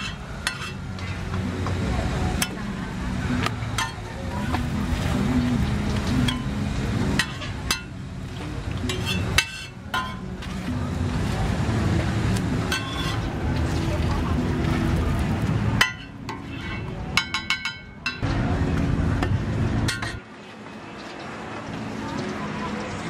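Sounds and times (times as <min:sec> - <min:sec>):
low street rumble: 0:00.0 - 0:23.0
metal spatula tapping griddle: 0:07.1 - 0:08.0, 0:08.8 - 0:10.3, 0:15.8 - 0:18.2.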